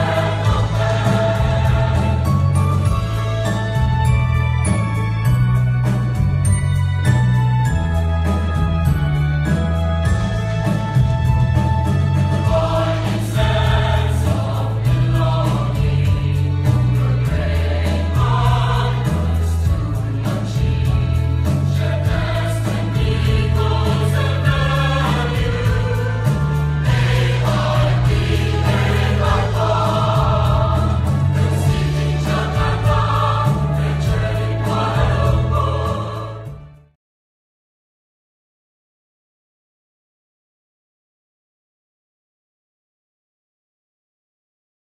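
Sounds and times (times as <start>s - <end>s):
choir singing: 0.0s - 3.6s, 12.3s - 36.7s
accompaniment with heavy low notes: 0.0s - 36.9s.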